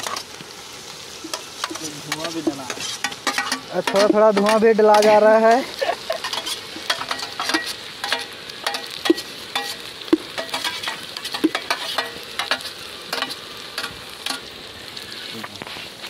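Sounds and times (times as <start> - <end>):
onions sizzling in hot oil: 0.0 - 16.0
spoon scraping a pot: 2.7 - 5.2, 6.2 - 9.8, 10.4 - 12.6.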